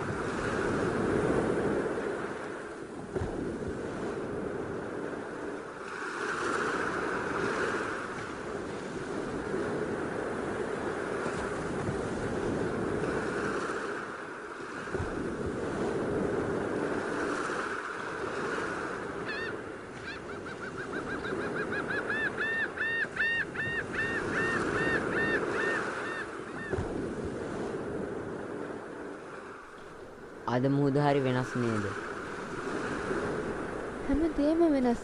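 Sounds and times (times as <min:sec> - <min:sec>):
sea surf washing on beach: 0:00.0 - 0:35.0
bird calling: 0:19.2 - 0:26.8.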